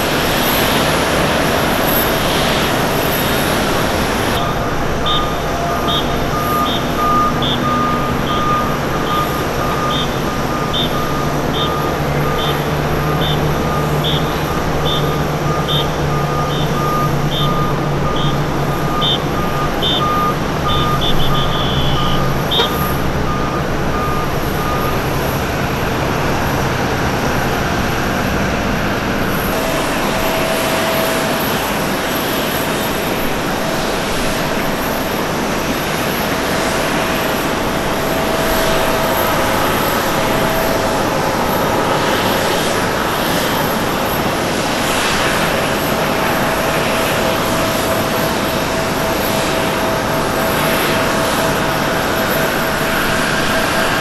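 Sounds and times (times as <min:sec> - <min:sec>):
lower pulsing tone: 0:00.0 - 0:28.6
engines rumbling: 0:00.0 - 0:54.0
high warning beeps: 0:00.1 - 0:25.4, 0:29.3 - 0:35.1.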